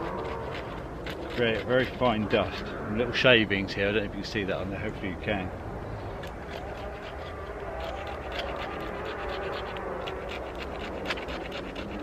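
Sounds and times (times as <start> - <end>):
knife spine scraping wood: 0.0 - 2.8, 6.1 - 12.0.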